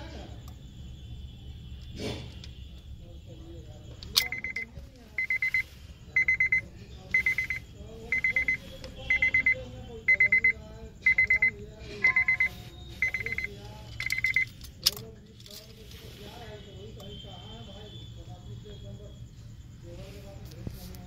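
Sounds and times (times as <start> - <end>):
electronic beeper beeping: 4.2 - 14.6.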